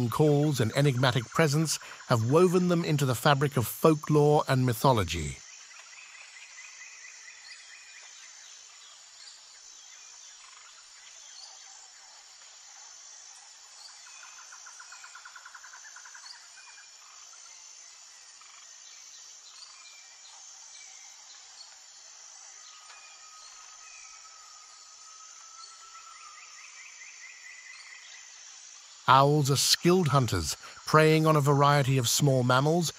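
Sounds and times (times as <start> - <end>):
steady high hiss: 0.0 - 5.4, 20.8 - 32.9.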